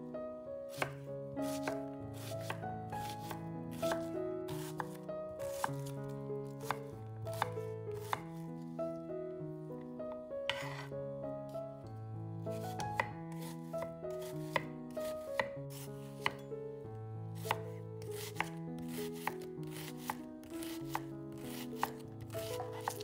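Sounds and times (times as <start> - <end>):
soft background music: 0.0 - 23.0
knife chopping on cutting board: 0.7 - 6.0, 6.6 - 8.2, 10.5 - 10.9, 12.5 - 16.4, 17.4 - 23.0.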